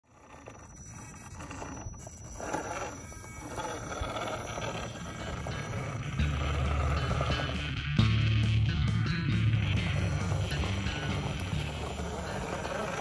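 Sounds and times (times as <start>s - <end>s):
steady bass line: 5.5s - 13.0s.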